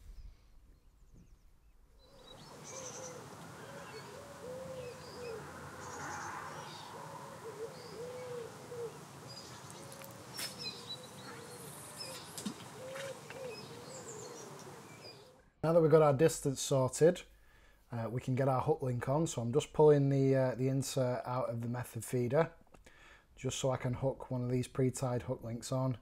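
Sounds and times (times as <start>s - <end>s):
small birds chirping: 0.0s - 15.4s.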